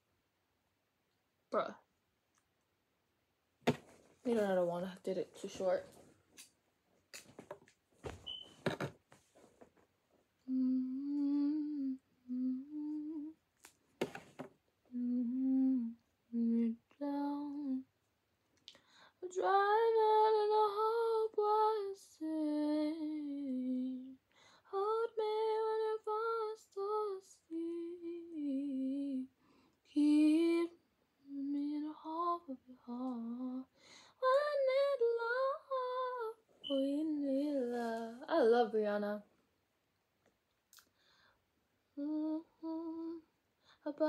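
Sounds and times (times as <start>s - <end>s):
girl singing: 10.4s - 13.5s, 14.9s - 18.0s, 19.2s - 39.3s, 41.9s - 44.0s.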